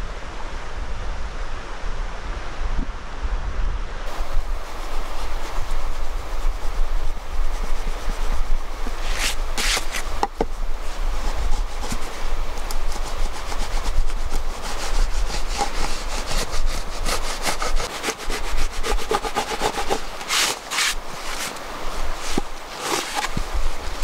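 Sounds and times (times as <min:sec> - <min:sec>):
hand saw cutting wood: 0:09.0 - 0:10.4, 0:11.5 - 0:21.6, 0:22.2 - 0:24.0.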